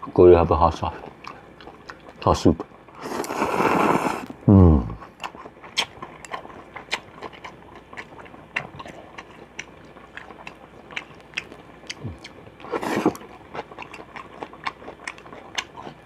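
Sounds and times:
person chewing food: 1.0s - 2.2s, 3.0s - 16.0s
loud slurp: 3.0s - 4.4s, 12.7s - 13.2s.

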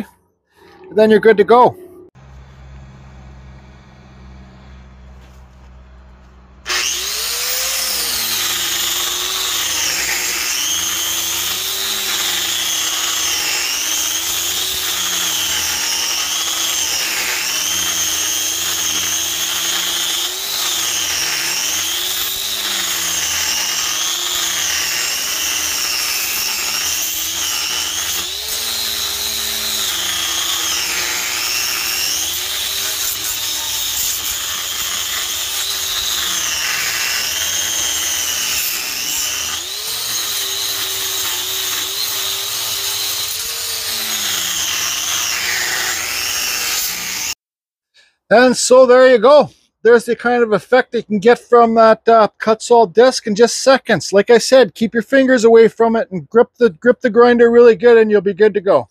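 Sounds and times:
angle grinder carving wood: 6.6s - 47.4s.

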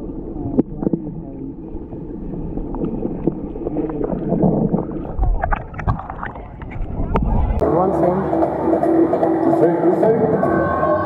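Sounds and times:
muffled underwater water movement: 0.0s - 7.6s.

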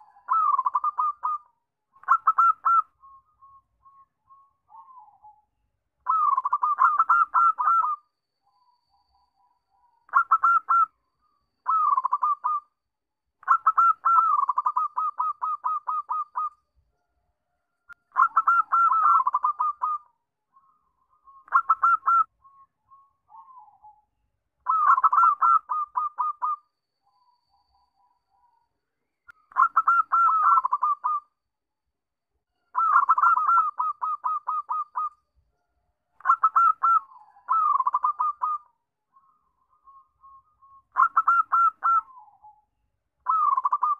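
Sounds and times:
dove cooing: 0.0s - 3.0s, 6.0s - 8.0s, 10.1s - 10.9s, 11.7s - 12.6s, 13.4s - 16.5s, 18.1s - 20.1s, 21.5s - 22.3s, 24.7s - 26.6s, 29.5s - 31.2s, 32.8s - 35.1s, 36.2s - 38.7s, 40.9s - 42.6s, 43.2s - 43.9s.

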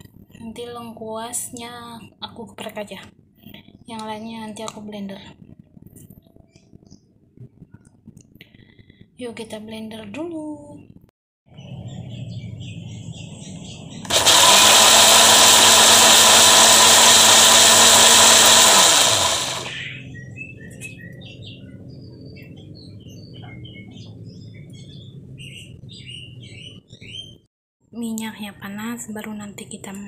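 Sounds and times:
electric blender running: 14.0s - 19.8s.

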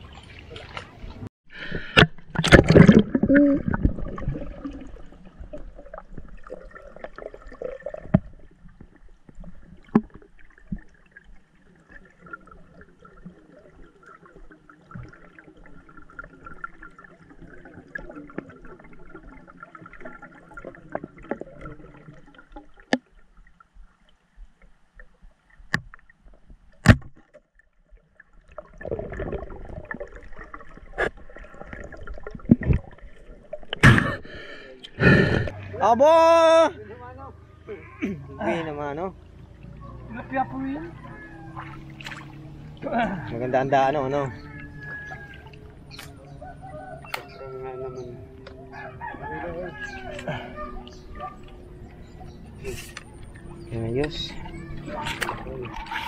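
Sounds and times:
water sloshing and gurgling: 0.0s - 56.0s
rush of water: 38.6s - 56.0s.

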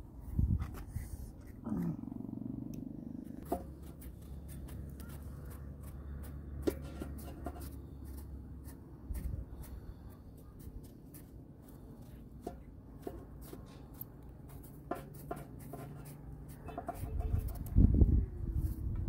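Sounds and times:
knife cutting squash: 3.4s - 11.3s.

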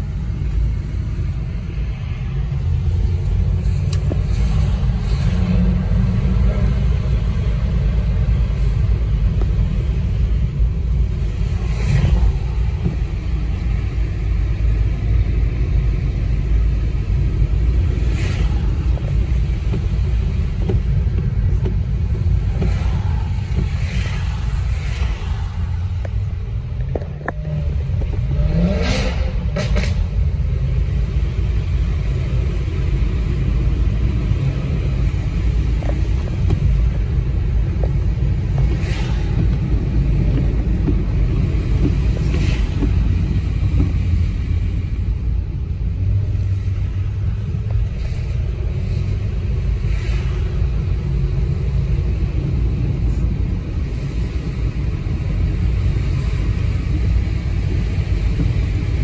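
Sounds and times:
car engine: 0.0s - 59.0s
tyres on wet road: 0.0s - 59.0s
engine revving: 27.3s - 30.0s.

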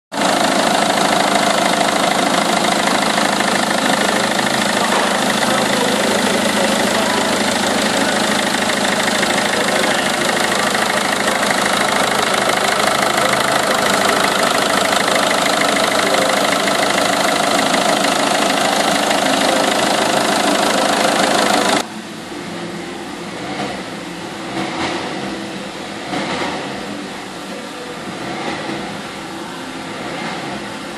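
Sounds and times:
diesel engine idling: 0.1s - 21.9s.

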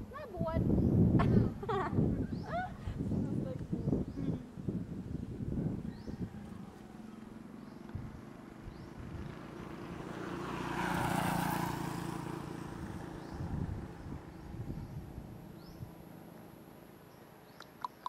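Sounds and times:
vehicle passing by: 4.7s - 16.7s.

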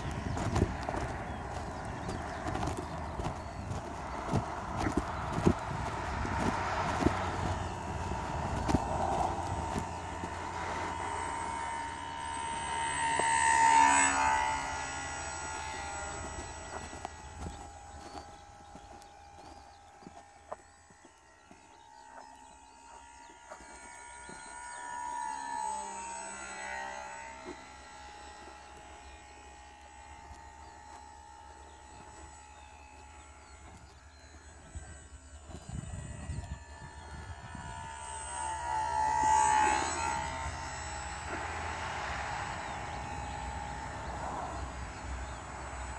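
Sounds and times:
wind on microphone: 0.0s - 19.4s, 34.6s - 45.3s
model airplane motor whining: 0.0s - 45.9s.

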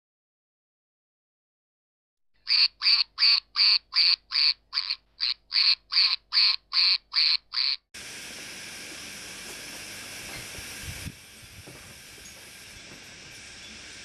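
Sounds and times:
duck quacks: 2.4s - 7.9s
steady hiss: 8.0s - 14.0s.

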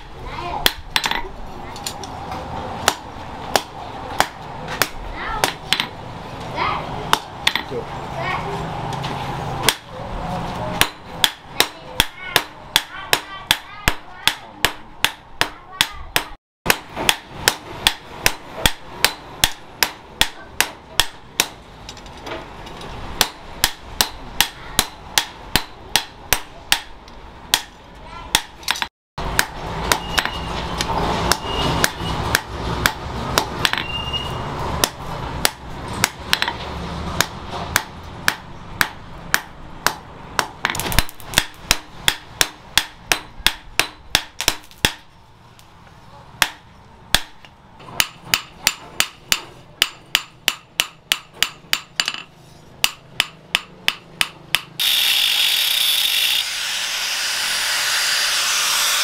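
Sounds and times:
angle grinder whining: 54.8s - 59.0s.

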